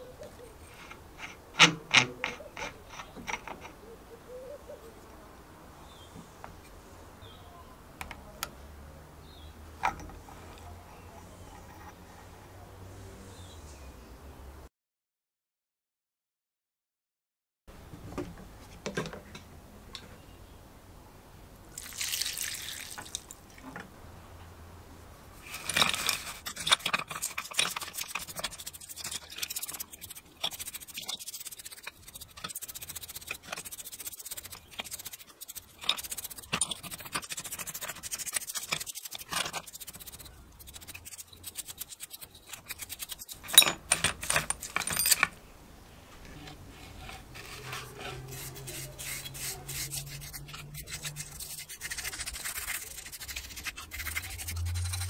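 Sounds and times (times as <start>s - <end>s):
brush scrubbing in solvent: 25.4s - 43.5s, 46.6s - 55.0s.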